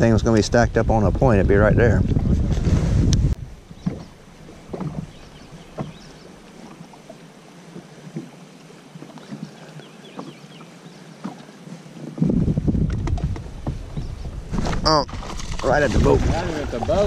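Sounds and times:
water lapping at boat hull: 2.1s - 17.0s.

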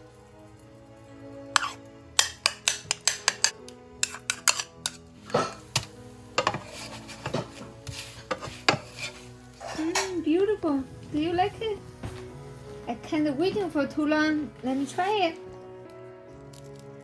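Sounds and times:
spatula scraping frying pan: 1.5s - 12.7s
spoon clinking against ceramic bowl: 1.6s - 6.6s.

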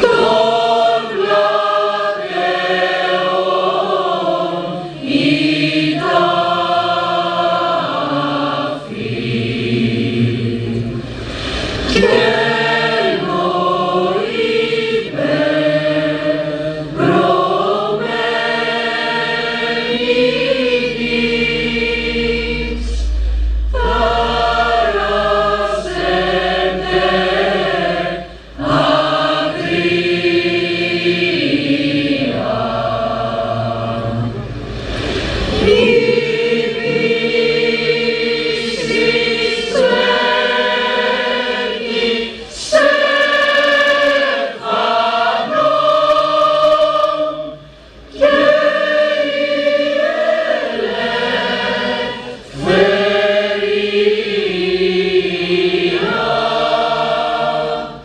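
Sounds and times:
choir singing a hymn: 0.0s - 58.0s
deep low rumble: 10.5s - 12.0s, 21.1s - 27.2s, 33.7s - 36.4s.

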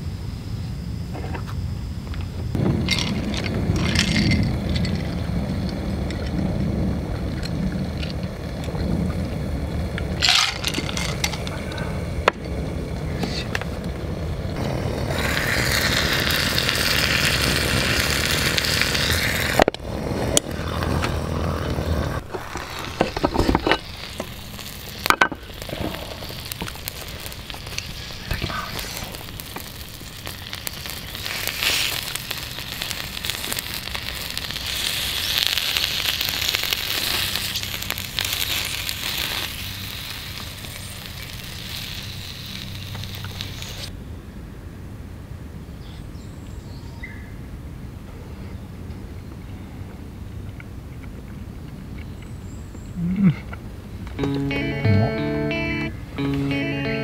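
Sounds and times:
food sizzling in a pan: 14.6s - 19.6s, 22.2s - 43.9s.

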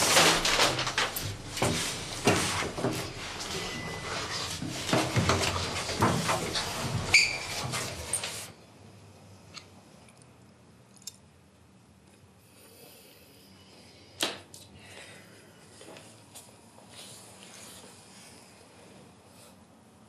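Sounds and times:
dense rustling: 0.0s - 8.5s
breathing: 12.4s - 16.0s.

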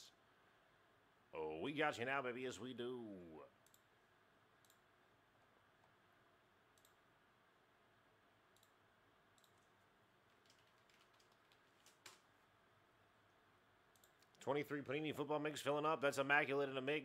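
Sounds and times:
keyboard and mouse clicks: 6.7s - 7.0s, 8.5s - 12.3s, 13.9s - 14.4s.

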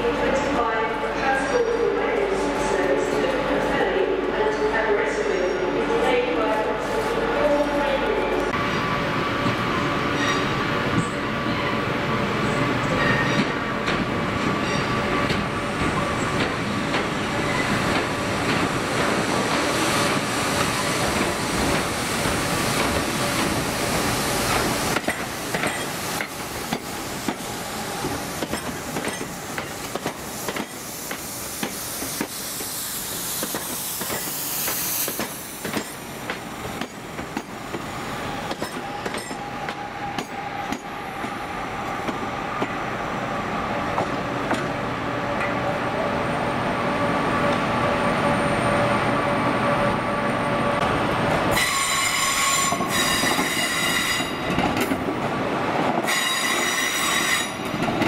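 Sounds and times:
train rushing noise: 0.0s - 58.0s
train wheels clacking: 24.5s - 32.8s, 33.4s - 40.9s.

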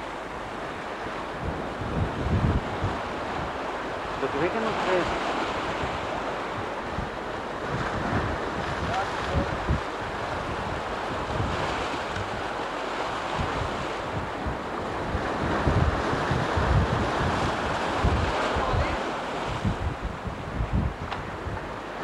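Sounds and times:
wind buffeting microphone: 0.0s - 22.0s
surf breaking over rocks: 1.4s - 20.0s.

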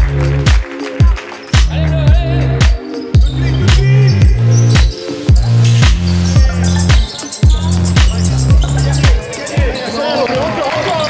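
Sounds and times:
sustained bass line: 0.0s - 0.6s, 1.6s - 9.2s
deep kick drum: 0.0s - 9.2s
funk music: 0.0s - 9.8s.

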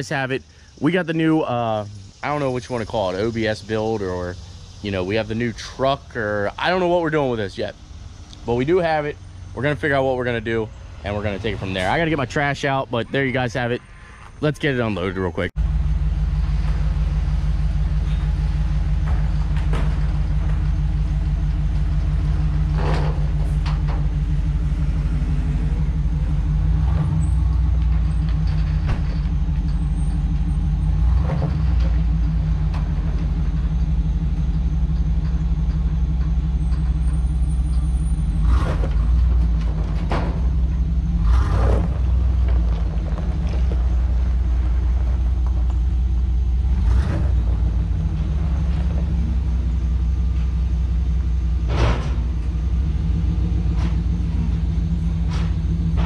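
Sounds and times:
pickup truck engine running: 0.0s - 13.8s, 14.5s - 56.0s
knocks and clunks: 16.3s - 56.0s.

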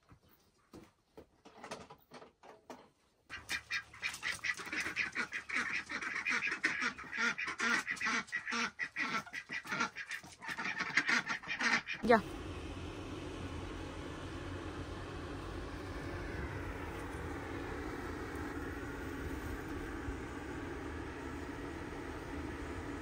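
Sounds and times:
poultry calling: 3.3s - 12.0s.

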